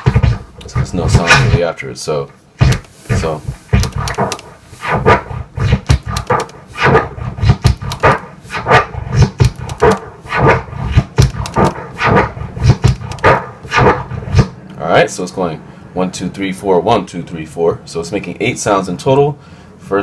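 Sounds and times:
turntable scratching drum sample: 0:00.0 - 0:01.6, 0:02.6 - 0:14.0.

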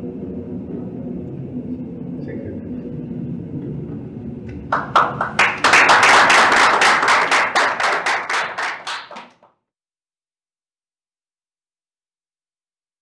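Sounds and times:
audience applause: 0:04.7 - 0:09.5.

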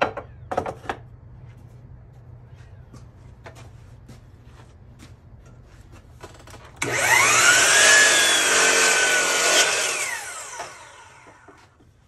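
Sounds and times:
miter saw whining: 0:06.8 - 0:11.8.

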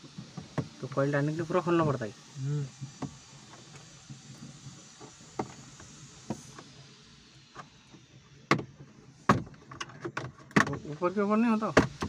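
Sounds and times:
clicks and knocks on car trim: 0:08.5 - 0:10.8.

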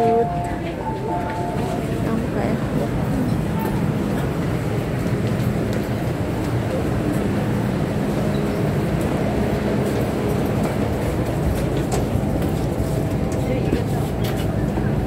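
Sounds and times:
subway train humming at platform: 0:00.0 - 0:15.0.

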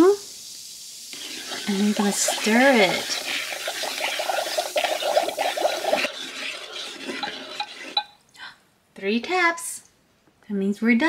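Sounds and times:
plastic wand stirring fizzing liquid: 0:00.0 - 0:08.2.

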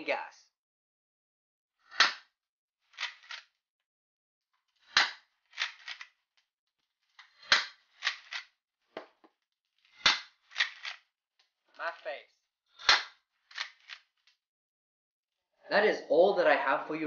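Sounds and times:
airsoft shotgun pops: 0:01.9 - 0:02.2, 0:07.5 - 0:07.8, 0:10.0 - 0:10.3, 0:12.8 - 0:13.2.

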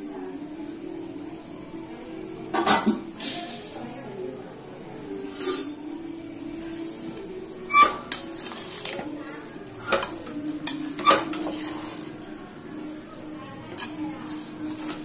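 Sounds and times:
metal spoon stirring rice: 0:07.7 - 0:12.2, 0:13.7 - 0:15.0.

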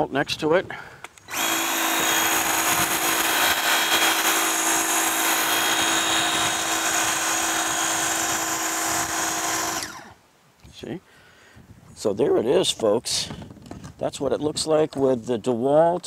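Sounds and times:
power washer motor humming: 0:01.3 - 0:10.1.

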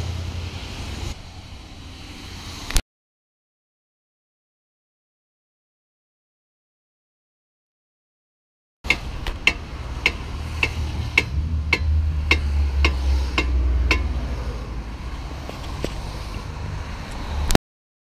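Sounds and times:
hammer striking brake disc: 0:08.9 - 0:14.3.

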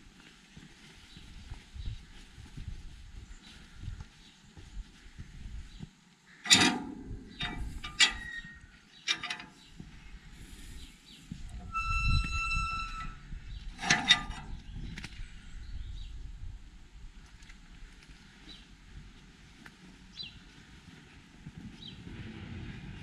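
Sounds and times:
metal latch clanking: 0:06.5 - 0:08.5, 0:09.1 - 0:09.6
gate hinge squealing: 0:06.5 - 0:09.5, 0:11.5 - 0:14.4
gate clanking against post: 0:06.5 - 0:09.6, 0:13.8 - 0:14.5.

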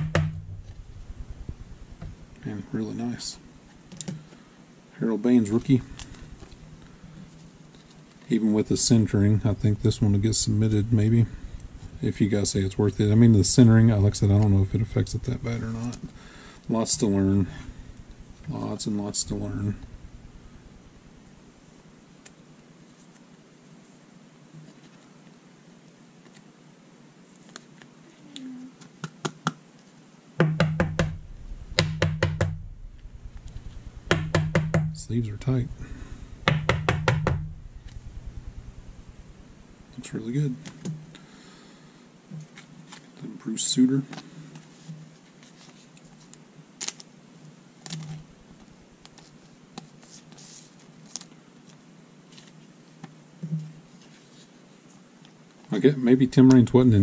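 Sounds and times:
sharp clicks and taps: 0:30.4 - 0:35.0, 0:36.4 - 0:39.2
cards and sleeves rustling: 0:49.0 - 0:53.0.

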